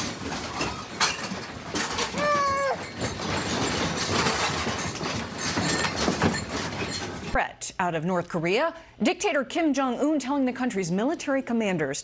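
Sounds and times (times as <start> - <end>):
room rattling: 0.0 - 7.4
cat meowing: 2.1 - 2.8.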